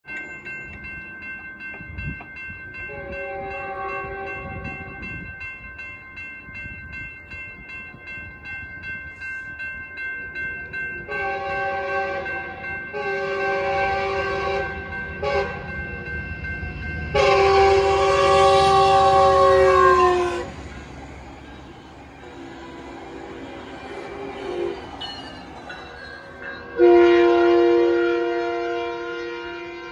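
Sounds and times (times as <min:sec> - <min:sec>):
crossing warning bells ringing: 0:00.0 - 0:29.9
train rumble: 0:00.2 - 0:29.9
train air horn blasts: 0:02.9 - 0:05.0, 0:11.1 - 0:15.7, 0:17.1 - 0:20.6, 0:24.4 - 0:24.8, 0:26.7 - 0:29.9.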